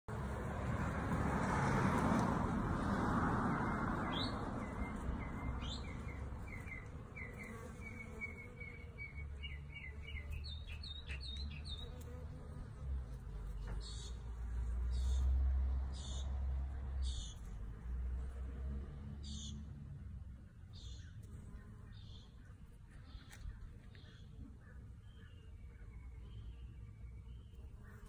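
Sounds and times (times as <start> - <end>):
bee buzzing: 0.1 - 15.4
small birds chirping: 3.5 - 12.4, 13.4 - 17.6, 19.2 - 19.7, 20.4 - 28.0.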